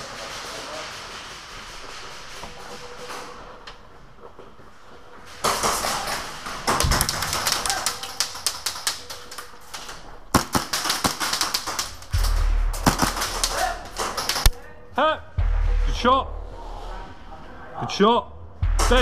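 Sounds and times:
automatic airsoft gunfire: 10.3 - 14.6.

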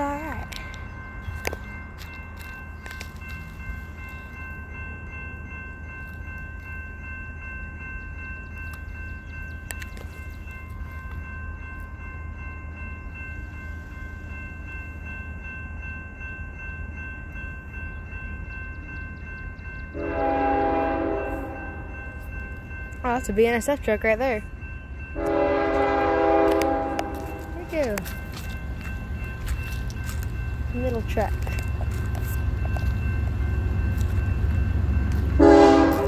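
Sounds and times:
train horn: 19.9 - 22.0, 25.2 - 27.6, 35.4 - 36.0.

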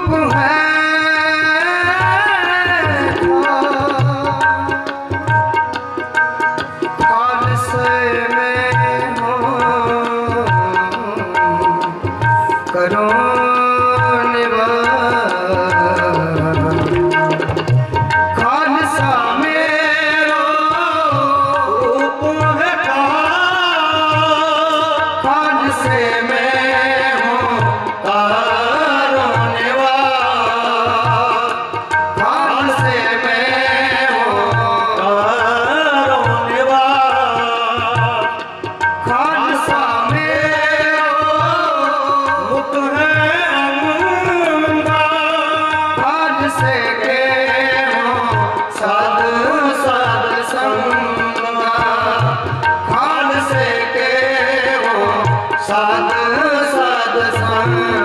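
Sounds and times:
harmonium: 0.0 - 58.0
tabla beat: 0.0 - 58.0
men singing devotional verses: 18.4 - 38.4, 39.1 - 58.0.

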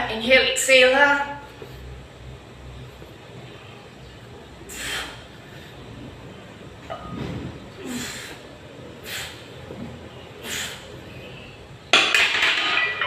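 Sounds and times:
man exhaling forcefully: 4.7 - 5.2, 7.8 - 8.4, 9.0 - 9.5, 10.4 - 10.8.

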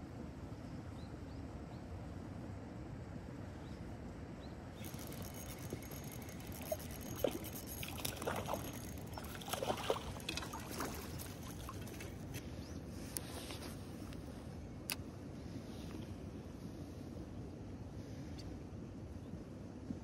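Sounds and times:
outdoor background hiss: 0.0 - 20.0
water splashing: 4.8 - 12.4.

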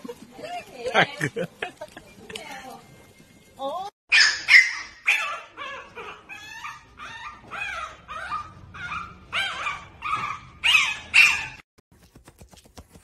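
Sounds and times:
puppy yipping and whimpering: 4.1 - 11.6.

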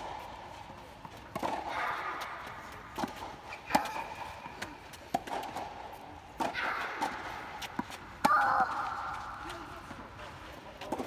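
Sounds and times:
tennis ball knocks and bounces: 0.0 - 10.0, 10.8 - 11.0.

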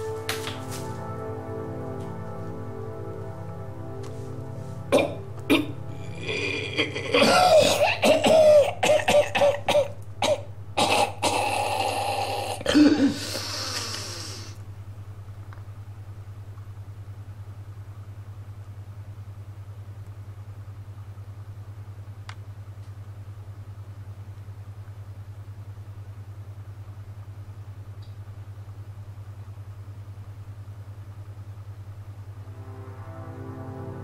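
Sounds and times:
music: 0.0 - 14.5, 32.4 - 34.0
steady low hum: 0.0 - 34.0.

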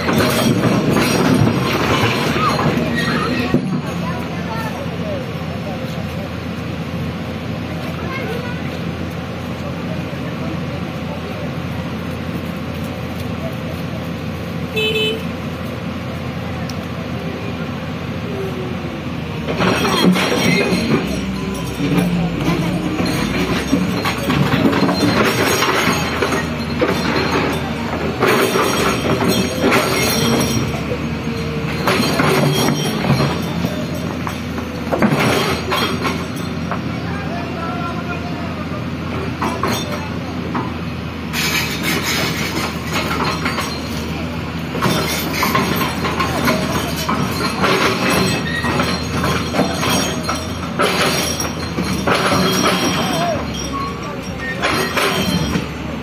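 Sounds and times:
machine squeals: 0.0 - 3.8, 19.5 - 34.6, 41.3 - 56.0
metallic screeches and clanks: 0.0 - 4.1, 19.4 - 36.7, 40.9 - 56.0
excavator engine under load: 0.0 - 56.0.

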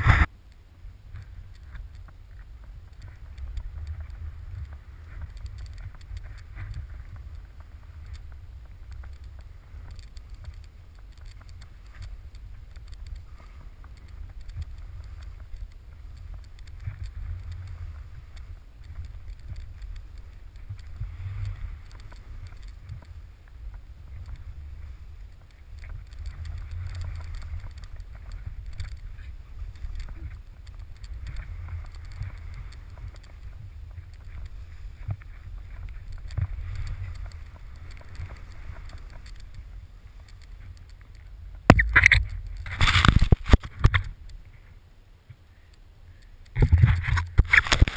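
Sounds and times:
skis hissing through snow: 0.0 - 0.3
wind buffeting camera: 0.0 - 47.9.

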